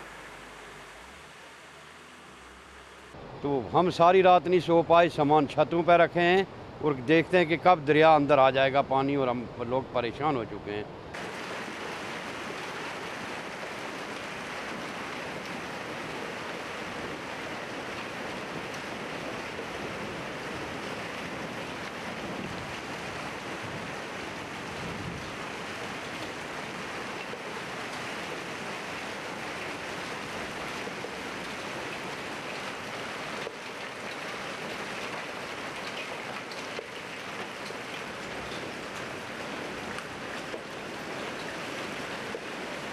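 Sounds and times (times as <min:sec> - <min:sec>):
heavy rain and hail: 0:11.2 - 0:42.9.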